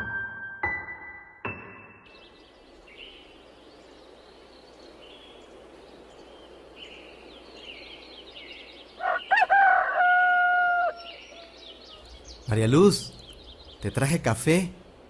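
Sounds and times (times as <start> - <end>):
piano note: 0.0 - 2.2
steady background hiss: 2.1 - 9.3, 11.0 - 15.0
small birds chirping: 2.1 - 15.0.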